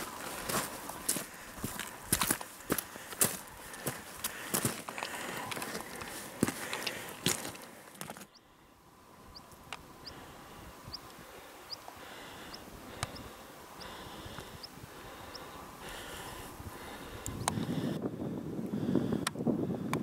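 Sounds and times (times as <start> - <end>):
footsteps crunching on gravel: 0.0 - 8.3.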